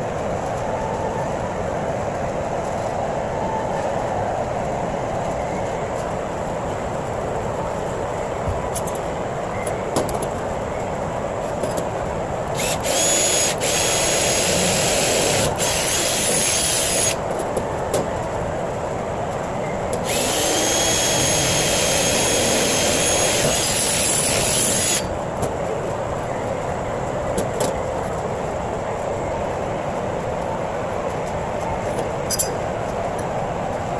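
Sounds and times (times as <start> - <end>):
cordless drill whining: 12.6 - 17.2, 20.0 - 25.1.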